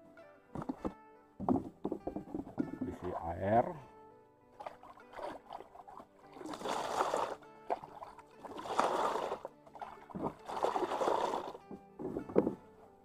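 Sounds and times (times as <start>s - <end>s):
background music: 0.0s - 13.0s
water sloshing in boat hull: 4.5s - 12.8s.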